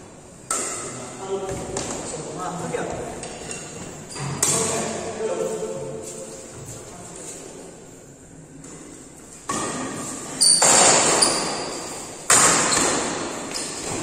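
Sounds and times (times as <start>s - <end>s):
racket hitting shuttlecock: 0.4s - 1.1s, 8.7s - 14.0s.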